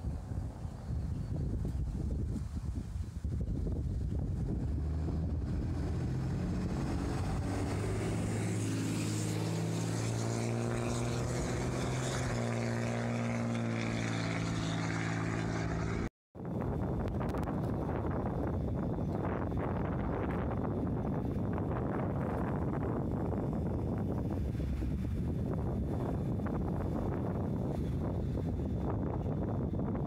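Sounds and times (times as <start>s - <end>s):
wind noise on microphone: 0.0s - 30.0s
low engine drone: 3.3s - 16.1s.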